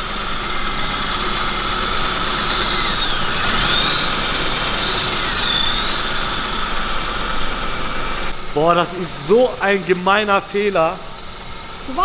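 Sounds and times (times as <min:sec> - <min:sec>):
thin high whistle: 0:00.0 - 0:08.8
car engine idling: 0:00.0 - 0:12.0.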